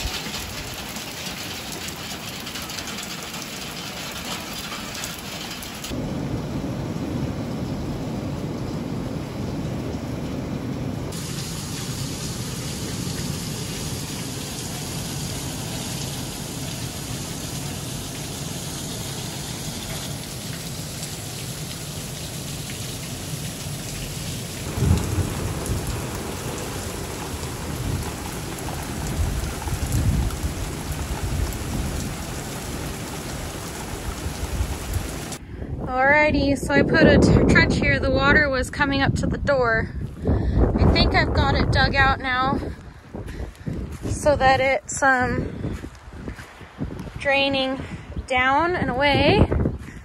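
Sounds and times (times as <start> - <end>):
low rumble of thunder: 0.0 - 22.4, 23.0 - 44.6
steady rain falling: 0.0 - 35.4.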